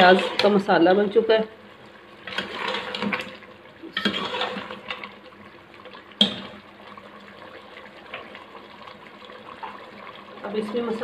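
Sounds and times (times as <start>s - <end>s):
ladle scraping pot: 0.0s - 0.6s, 2.2s - 5.2s
ladle stirring wet gravy: 0.0s - 0.6s, 1.7s - 10.4s.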